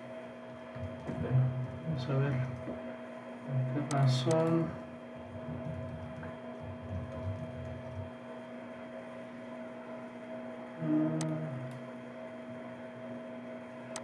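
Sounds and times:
electrical mains hum: 0.0s - 14.0s
low uneven rumble: 0.8s - 8.4s.

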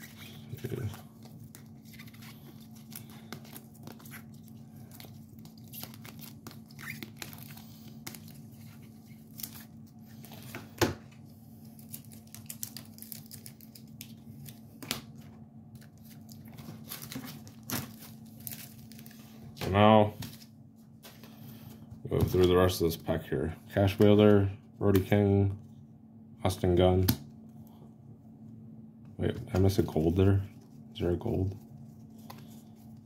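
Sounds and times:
trading cards rustling and clicking: 0.0s - 22.8s
low steady hum: 0.0s - 33.0s.

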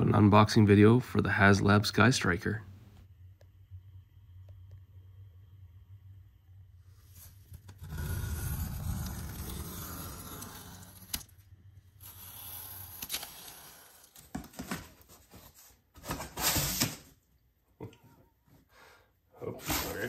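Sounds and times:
utility knife slicing tape: 7.6s - 11.3s, 12.0s - 14.2s.

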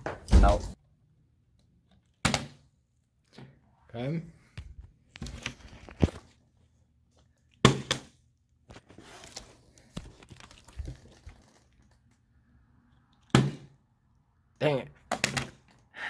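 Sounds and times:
plastic bottle rustling: 8.7s - 12.1s.

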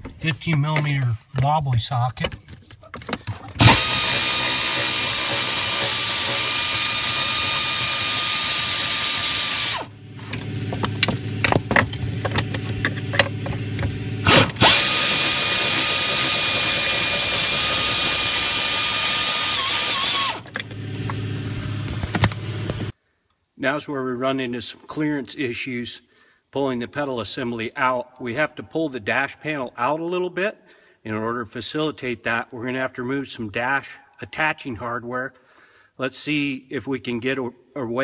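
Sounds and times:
air ratchet whining: 3.6s - 10.5s, 14.2s - 21.1s
clicks and knocks: 10.3s - 14.0s.

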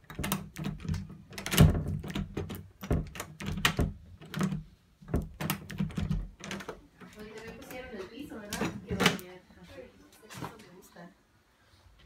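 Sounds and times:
door handle and latch clicking: 0.0s - 4.6s, 5.2s - 6.8s.

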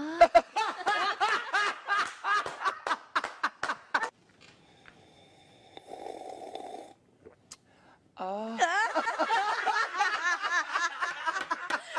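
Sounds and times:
breathy sucking sound: 4.5s - 7.7s.

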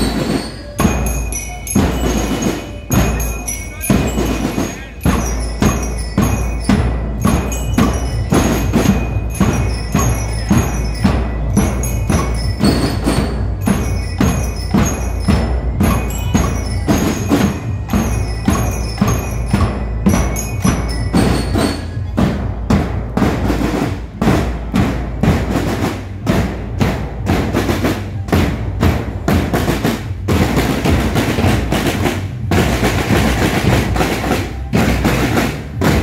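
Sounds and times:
ringing bell-like tones: 0.0s - 23.1s
marching drums playing: 0.0s - 36.0s.

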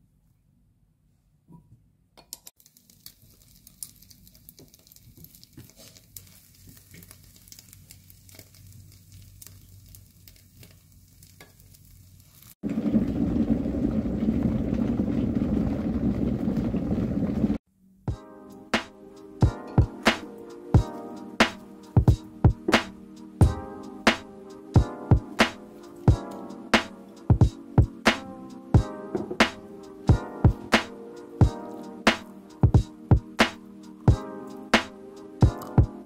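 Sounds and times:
bread sizzling in a pan: 2.6s - 14.6s
electric kettle rumbling: 12.6s - 17.6s.

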